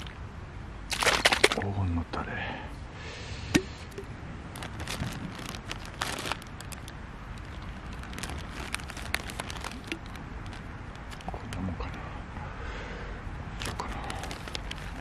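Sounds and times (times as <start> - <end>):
food packaging crinkling: 0.9 - 1.6, 4.5 - 11.6, 13.6 - 15.0.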